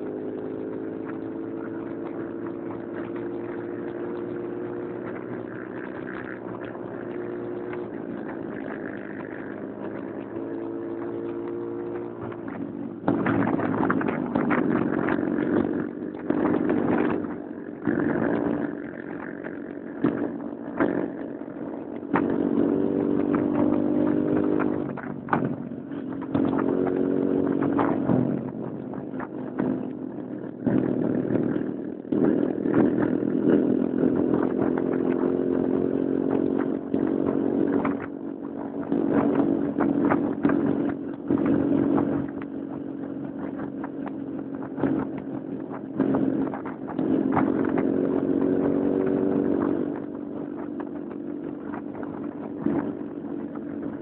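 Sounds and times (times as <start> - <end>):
motorcycle engine running: 0.0 - 54.0.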